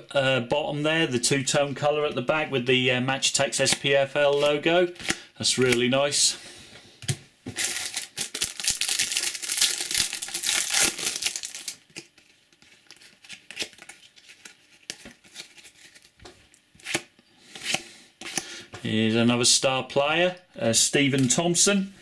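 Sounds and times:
foil pack tearing and crinkling: 7.6s - 12.2s.

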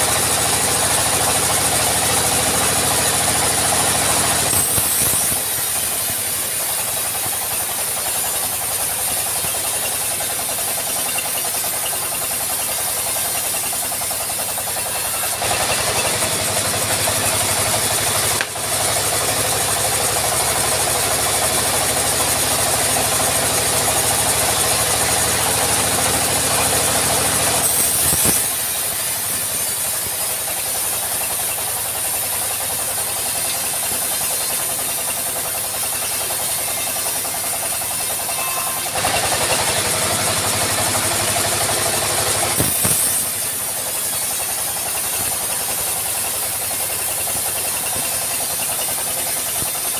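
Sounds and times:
band sawmill cutting log: 0.0s - 49.9s
sharp click: 42.6s - 43.2s.

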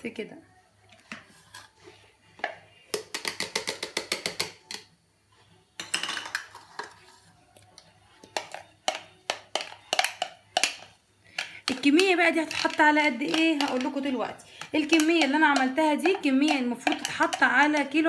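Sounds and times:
plastic bowl knocks: 2.9s - 4.7s.

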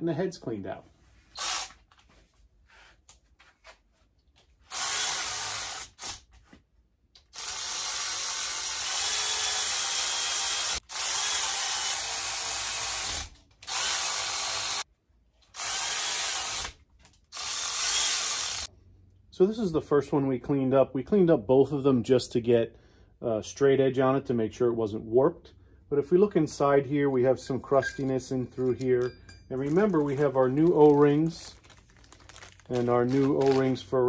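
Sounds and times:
cordless power tool running: 1.4s - 1.8s, 4.7s - 6.1s, 7.4s - 14.8s, 15.6s - 16.7s, 17.3s - 18.7s.

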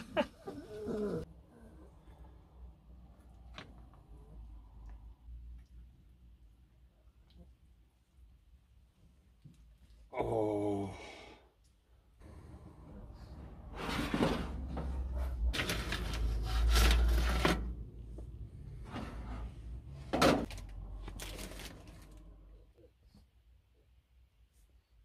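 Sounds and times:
clattering and scraping: 13.5s - 17.9s.

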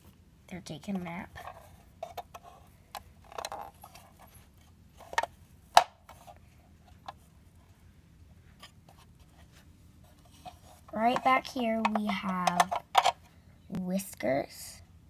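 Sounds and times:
plastic toy clicks and knocks: 1.3s - 3.8s, 11.1s - 13.2s.

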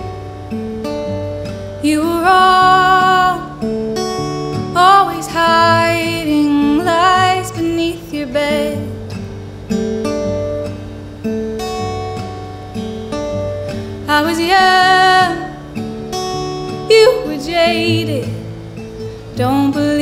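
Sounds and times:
acoustic guitar playing: 0.0s - 20.0s
woman singing: 1.8s - 3.7s, 4.6s - 9.0s, 14.0s - 18.5s, 19.3s - 20.0s.

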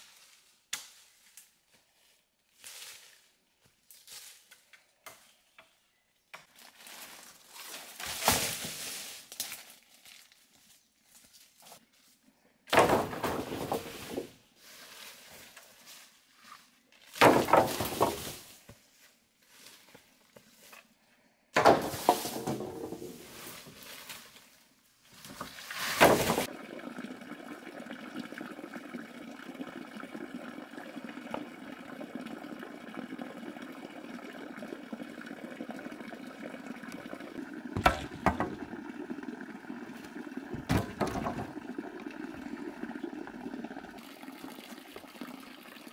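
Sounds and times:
rustling in dry leaf litter: 6.6s - 11.6s.

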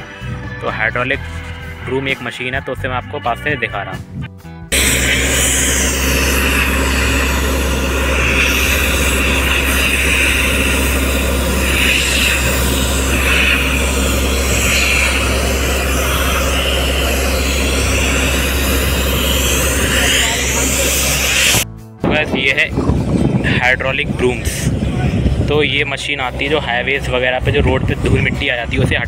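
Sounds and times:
compressed air blasting hiss: 4.7s - 21.6s
air compressor engine running: 4.7s - 29.0s.

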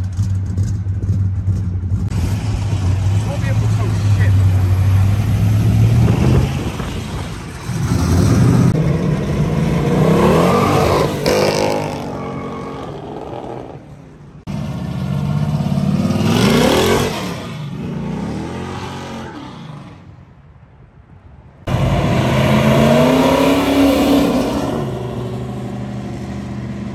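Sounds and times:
car engines accelerating: 0.0s - 20.2s, 21.6s - 26.9s
car engine revving: 21.7s - 26.9s.

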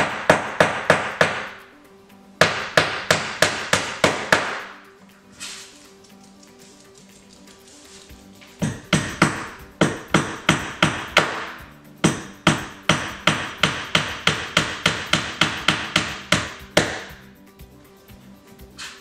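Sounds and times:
hammer driving nails into wood: 0.0s - 1.6s, 2.4s - 4.8s, 8.6s - 17.2s.

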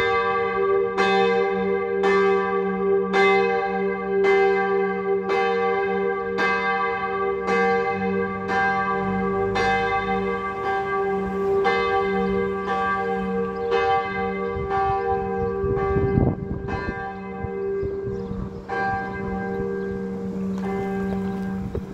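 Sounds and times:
church bell tolling: 0.0s - 21.9s.

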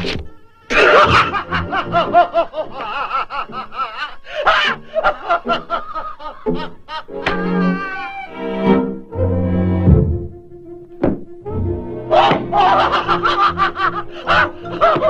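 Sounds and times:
orchestral cartoon music: 0.0s - 15.0s
cartoon cat cackling laughter: 0.7s - 8.3s, 12.2s - 15.0s.

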